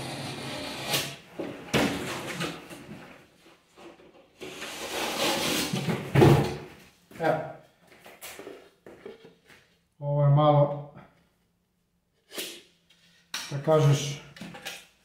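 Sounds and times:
scraping plasterboard: 0.0 - 3.0, 3.8 - 6.6.

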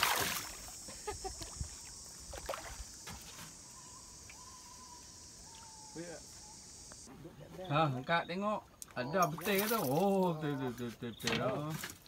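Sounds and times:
fish splashing at surface: 0.0 - 0.8
high-pitched insect buzz: 0.0 - 7.1.

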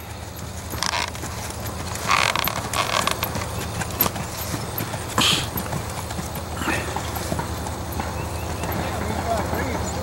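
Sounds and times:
horse hoofbeats: 0.0 - 10.0.

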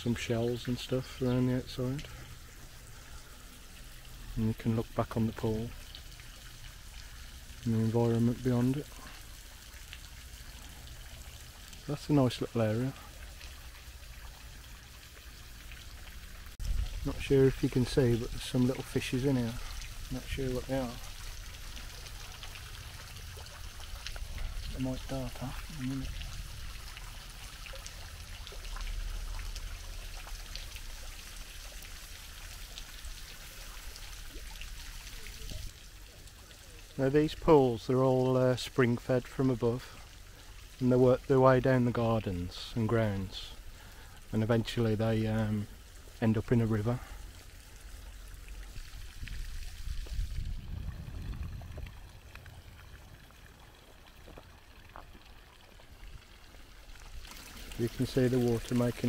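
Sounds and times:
faint water drips: 0.0 - 59.0
water trickling and splashing: 0.0 - 59.0
steady low rumble: 16.3 - 30.0, 48.0 - 54.4
low rumble: 49.8 - 53.5.

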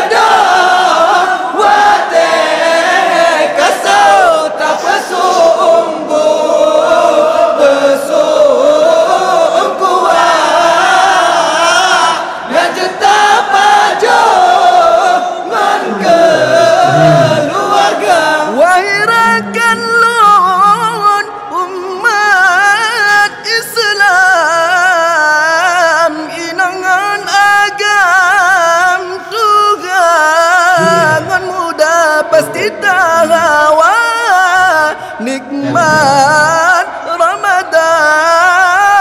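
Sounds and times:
man singing: 0.0 - 39.0.

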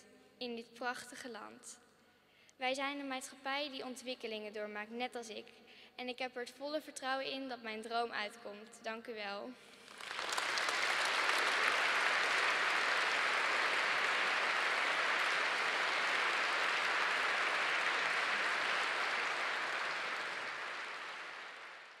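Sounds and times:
audience applauding: 9.8 - 22.0.

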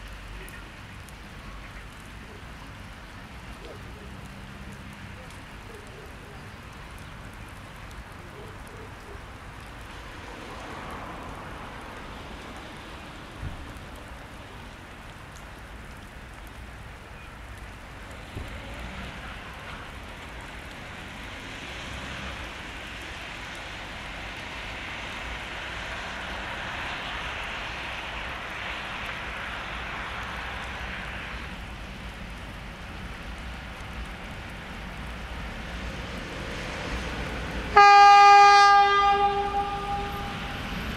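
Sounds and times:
freight train rumbling: 35.0 - 40.9.

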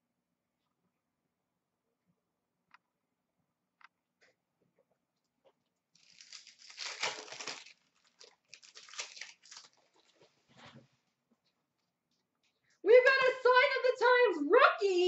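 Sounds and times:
cards crackling as pulled out: 6.0 - 10.3
card pack wrapper crinkling: 6.0 - 10.4.

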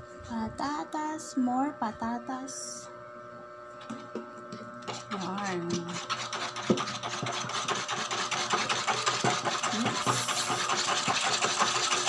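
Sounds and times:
utensil beating batter in bowl: 3.8 - 12.0.

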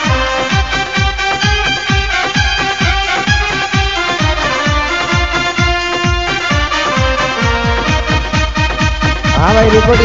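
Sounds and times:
sustained keyboard melody: 0.0 - 10.0
electronic kick drum: 7.0 - 10.0.

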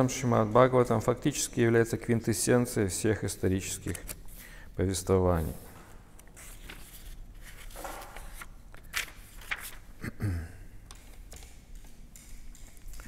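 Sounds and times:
faint murmur or breath: 4.3 - 4.8.

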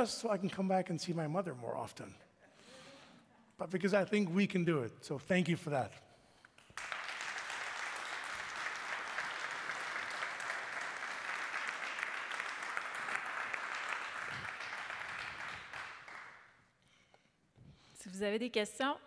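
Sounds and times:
audience applauding: 6.6 - 16.5.

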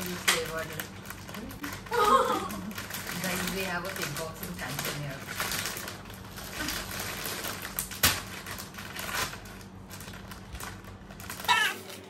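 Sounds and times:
plastic packaging crackling: 0.0 - 12.0.

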